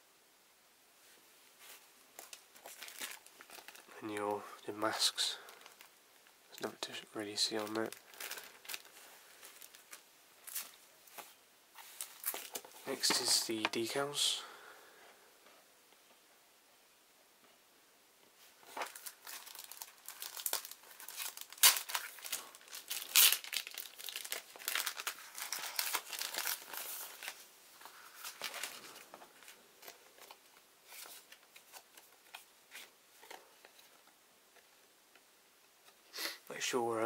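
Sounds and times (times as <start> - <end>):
paper crinkling and rustling: 1.6 - 3.9, 7.4 - 13.7, 18.6 - 34.0.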